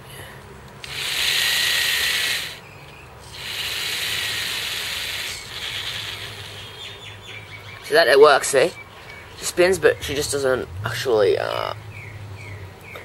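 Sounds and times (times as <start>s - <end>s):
electric motor whirring: 0.8s - 2.6s, 3.3s - 6.7s.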